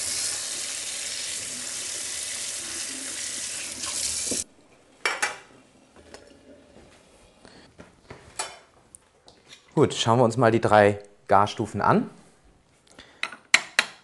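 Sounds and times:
kitchen tap running: 0.0 - 4.4
dishes clinking: 5.0 - 5.5, 8.3 - 8.7.

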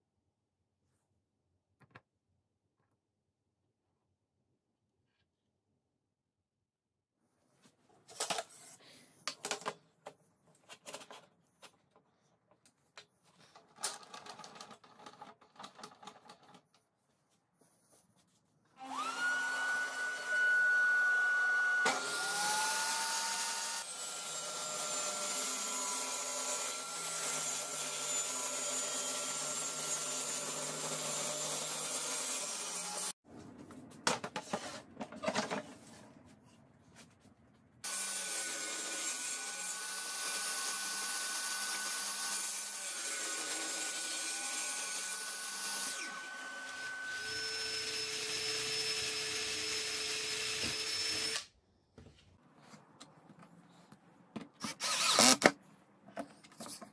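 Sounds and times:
vacuum cleaner whining: 18.8 - 24.9.

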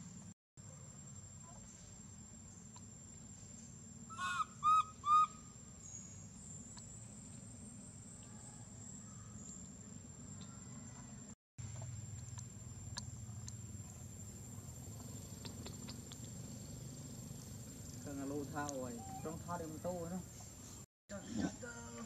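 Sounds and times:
baby monkey whimpering coos: 19.0 - 19.4.

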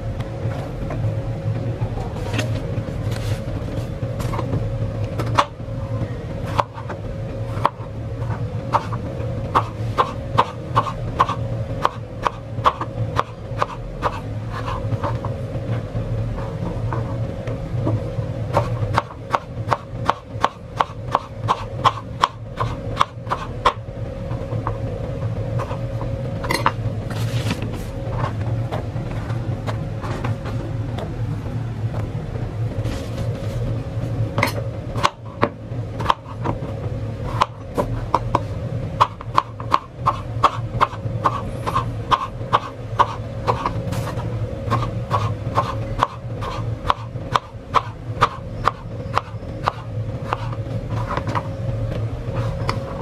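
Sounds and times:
low hum: 0.0 - 53.0
knife chopping on plastic board: 18.6 - 23.8, 37.3 - 51.4.

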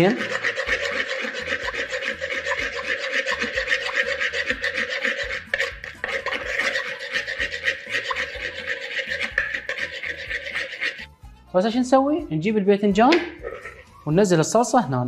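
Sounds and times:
spoon scraping a wooden bowl: 0.0 - 11.2, 13.1 - 14.0.

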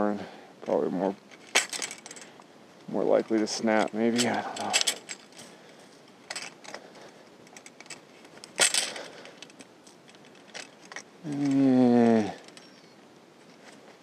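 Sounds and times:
man humming low note: 11.2 - 12.4.

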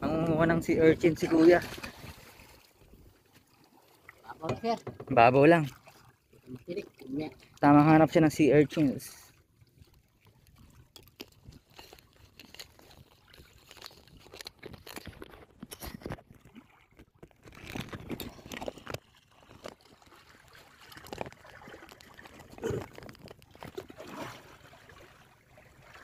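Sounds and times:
water splashing against boat: 0.0 - 26.0
knocks on wooden boat: 4.5 - 5.2.

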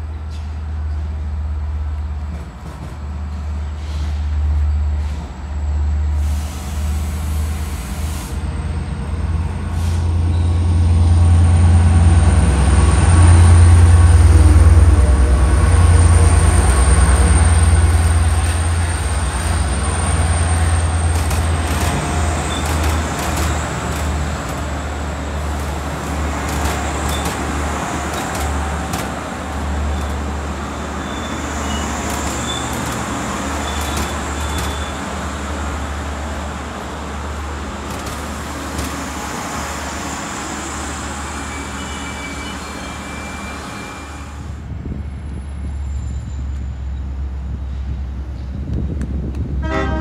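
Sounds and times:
heavy vehicle engine rumbling: 2.1 - 42.3.

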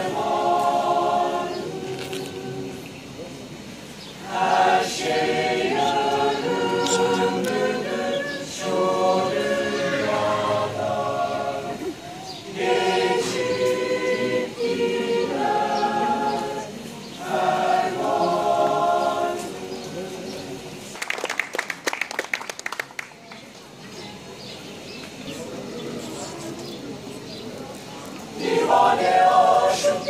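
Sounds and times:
mixed choir singing a cappella: 0.0 - 20.9, 28.3 - 30.0.

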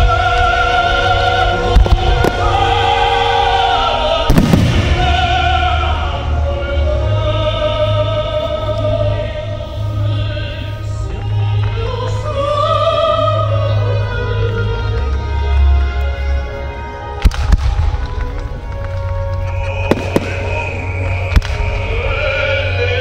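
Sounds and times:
operatic singing over bass music: 0.0 - 23.0
firework bang: 4.3 - 5.6, 19.9 - 20.7.

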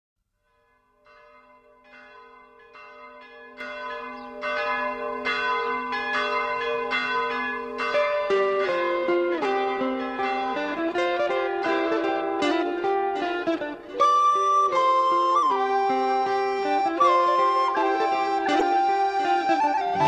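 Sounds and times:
bells ringing: 0.4 - 13.6
musical accompaniment: 7.9 - 20.0.

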